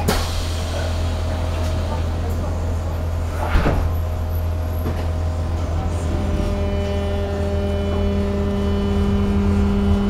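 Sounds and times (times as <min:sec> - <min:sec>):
tram interior hum: 0:00.0 - 0:10.0
droning traction motor tone: 0:04.0 - 0:10.0.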